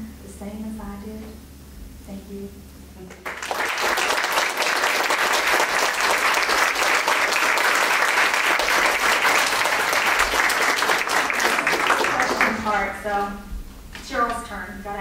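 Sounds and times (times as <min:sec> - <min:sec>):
audience applauding: 0:03.2 - 0:13.0.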